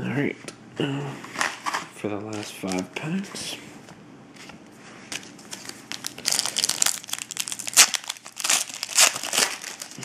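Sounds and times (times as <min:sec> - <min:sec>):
foil wrapper crinkling as torn open: 0:05.5 - 0:10.0.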